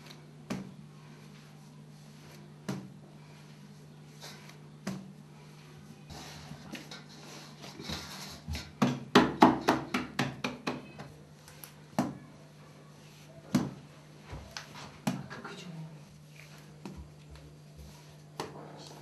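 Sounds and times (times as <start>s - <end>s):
dough knocking on a table: 8.5s - 11.2s, 13.5s - 13.9s.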